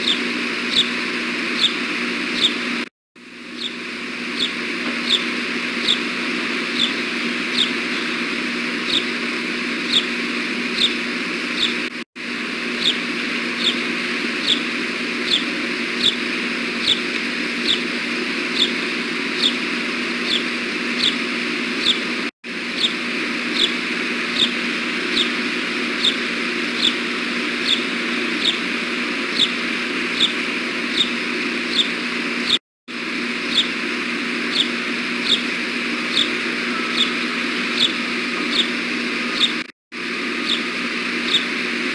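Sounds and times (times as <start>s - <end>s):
bird high-pitched chirps: 4.4s - 6.0s, 6.8s - 8.1s, 8.9s - 9.1s, 13.6s - 13.8s, 14.4s - 14.7s, 15.3s - 16.2s, 20.3s - 21.2s, 24.4s - 25.4s, 27.6s - 28.6s, 34.5s - 35.5s, 36.1s - 38.7s, 40.4s - 40.6s, 41.2s - 41.5s.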